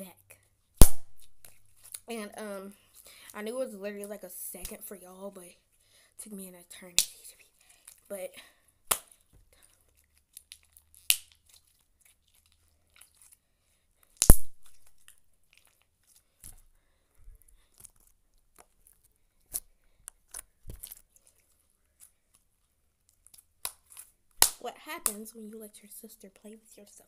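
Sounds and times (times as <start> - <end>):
slime popping and clicking: 14.2 - 15.2.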